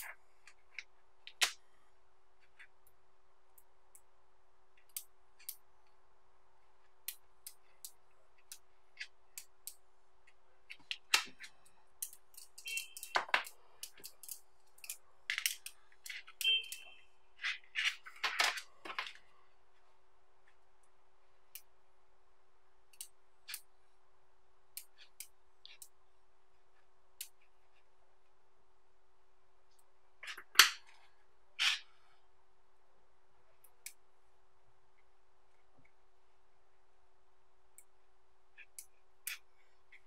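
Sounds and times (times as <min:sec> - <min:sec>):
faint steady hum: 0:00.0 - 0:40.0
magnetic balls clicking: 0:07.0 - 0:19.2.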